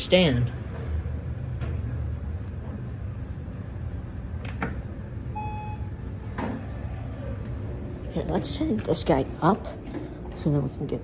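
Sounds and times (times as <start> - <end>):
low rumble of elevator lobby: 0.0 - 11.0
short electronic beep: 5.4 - 6.0.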